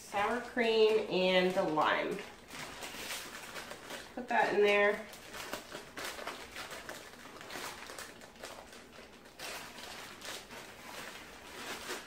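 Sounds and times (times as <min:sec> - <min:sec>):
plastic bag crinkling: 0:00.1 - 0:12.0.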